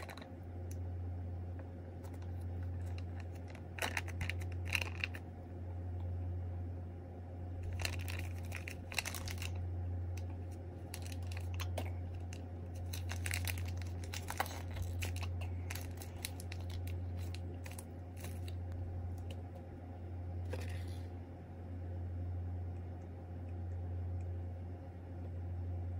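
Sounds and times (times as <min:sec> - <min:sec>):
steady low hum: 0:00.0 - 0:25.9
foil pouch crinkling: 0:02.0 - 0:05.2, 0:07.6 - 0:19.4.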